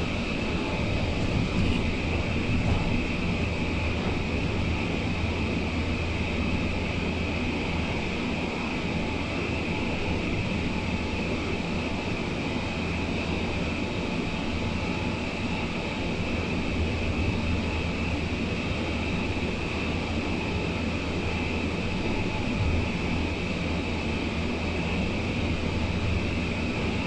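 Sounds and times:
train car rumble and whine: 0.0 - 27.0.

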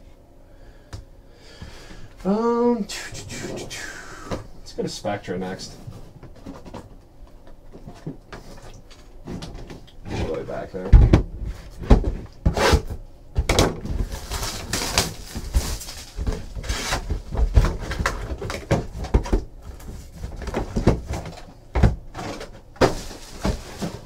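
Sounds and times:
wrapper rustling: 13.8 - 17.1, 22.2 - 24.0
cardboard scraping: 13.8 - 18.7, 22.1 - 24.0.

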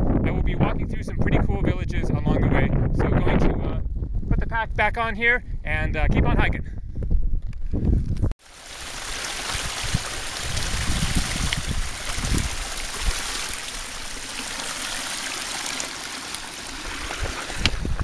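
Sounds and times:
stream trickling over rocks: 8.4 - 18.0.

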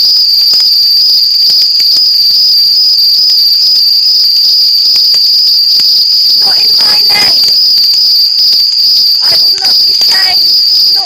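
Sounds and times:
high-pitched trill: 6.3 - 7.9.

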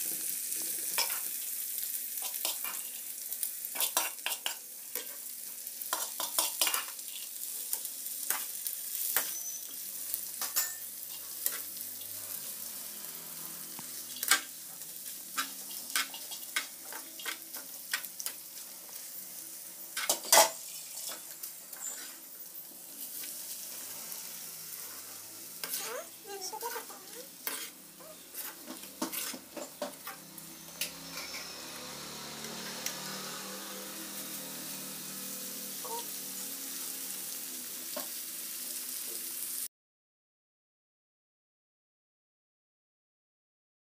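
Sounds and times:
food sizzling in hot oil: 0.0 - 39.7
spatula scraping a pan: 0.8 - 1.4, 2.2 - 14.5, 15.3 - 19.1, 20.0 - 23.8, 24.7 - 31.6.

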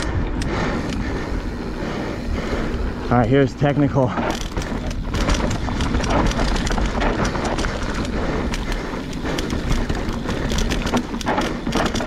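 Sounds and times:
bike rattles and knocks: 0.0 - 12.0
bike tyres crunching over dirt: 0.0 - 12.0.

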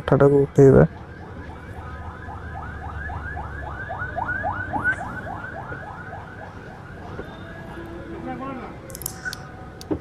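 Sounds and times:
electronic whooping alarm: 1.2 - 7.8.

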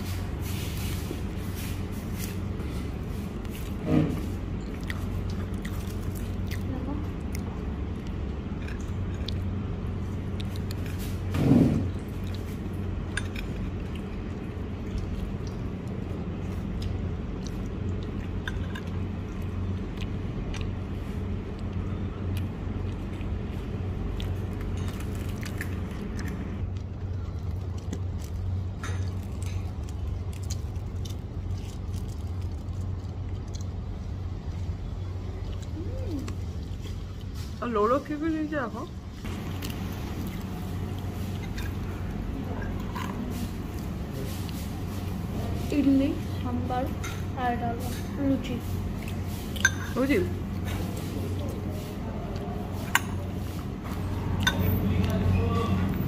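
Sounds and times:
low room hum: 0.0 - 56.0
cutlery and crockery clinking: 49.6 - 50.0, 54.4 - 54.8.

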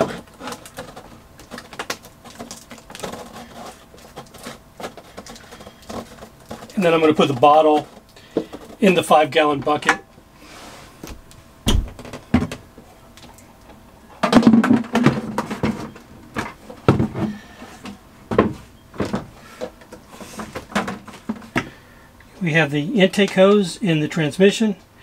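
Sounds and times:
plastic bucket knocks and scrapes: 14.2 - 21.8.

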